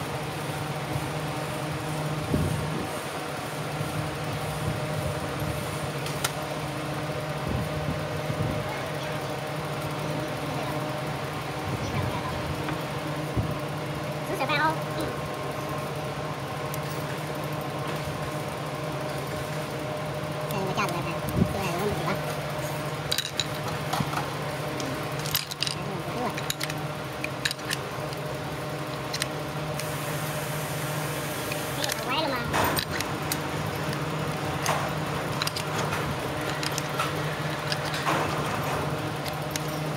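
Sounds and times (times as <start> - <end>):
low machinery hum: 0.0 - 39.9
metal clicks and clinks: 23.1 - 23.9, 25.1 - 28.2, 35.4 - 39.9.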